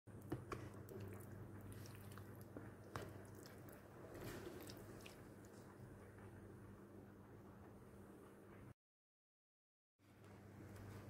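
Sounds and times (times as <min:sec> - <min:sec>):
spoon stirring wet marinade: 0:00.2 - 0:05.9.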